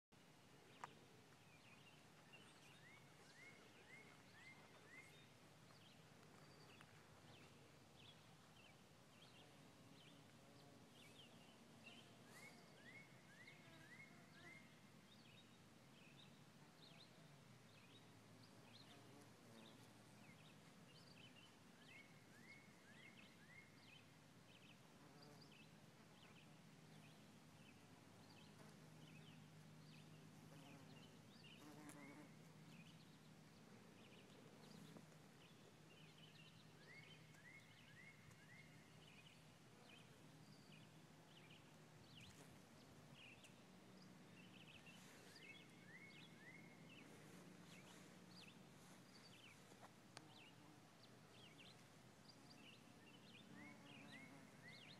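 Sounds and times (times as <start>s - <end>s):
birds chirping: 25.4s - 54.9s.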